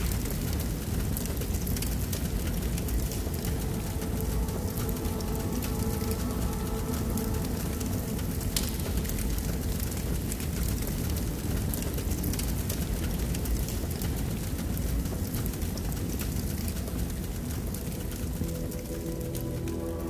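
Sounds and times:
dense crackle: 0.0s - 20.0s
steady rumbling: 0.0s - 20.0s.

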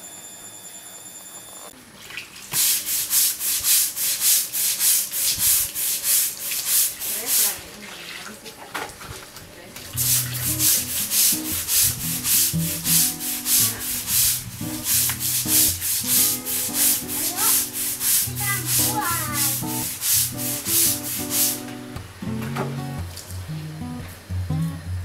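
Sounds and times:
brush scrubbing wet concrete: 2.5s - 8.5s, 9.8s - 21.8s.

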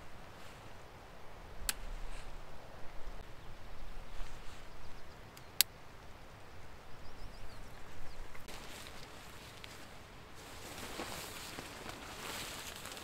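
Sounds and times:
nylon fabric rustling: 8.5s - 13.0s.

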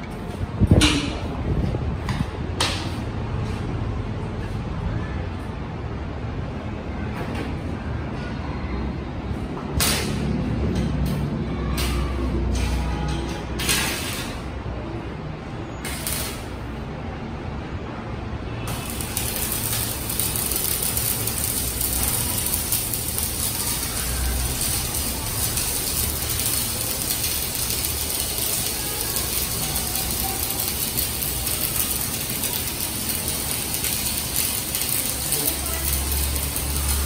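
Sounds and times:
welding arc crackling and sizzling: 15.8s - 16.7s, 18.7s - 37.0s.

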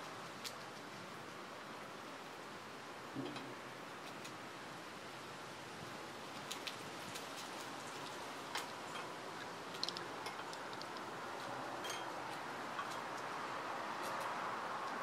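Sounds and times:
squirrel chewing a nut: 0.0s - 2.1s, 6.3s - 15.0s
steady outdoor hiss: 0.0s - 15.0s.

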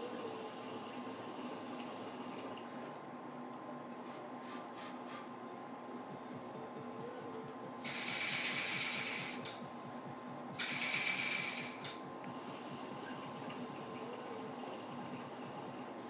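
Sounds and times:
hookah water bubbling: 0.3s - 2.7s, 12.3s - 16.0s.

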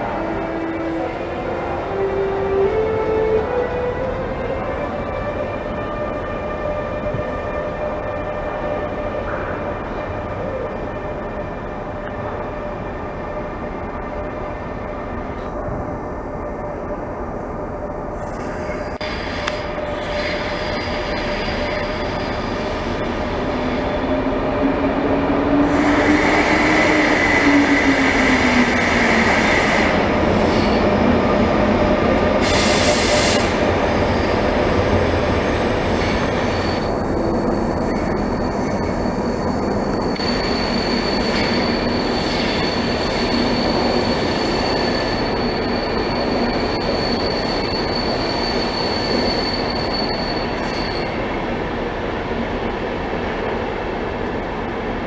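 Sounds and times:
wheel squeal: 35.2s - 51.2s.

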